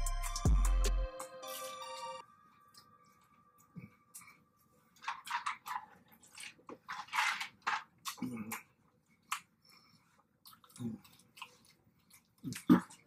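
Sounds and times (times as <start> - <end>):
chewing and lip-smacking: 8.0 - 13.0.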